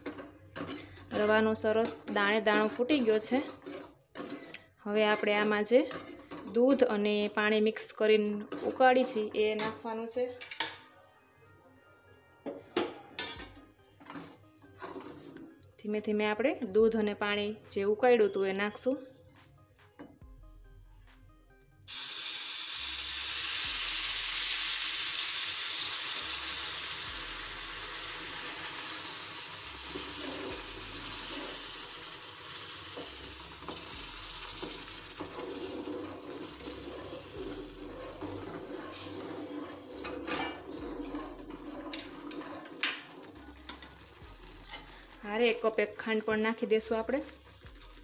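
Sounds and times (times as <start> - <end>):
liquid sizzling in hot fat: 21.9 - 45.6, 46.3 - 48.0.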